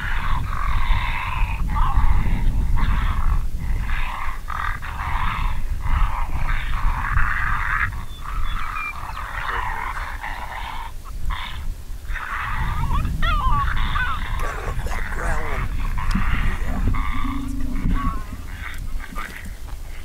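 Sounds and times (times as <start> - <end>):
low wind rumble: 12.5 - 20.0
heavy breathy panting: 14.4 - 17.0.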